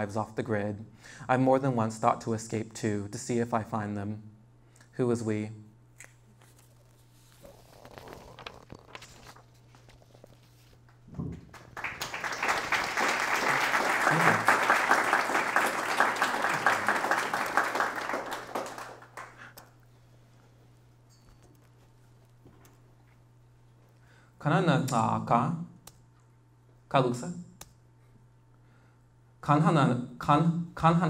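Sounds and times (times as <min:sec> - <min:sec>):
audience applause: 0:11.5 - 0:19.6.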